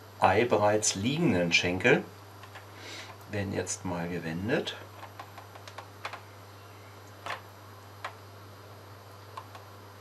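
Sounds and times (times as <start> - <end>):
light clicks and taps: 9.3 - 9.7.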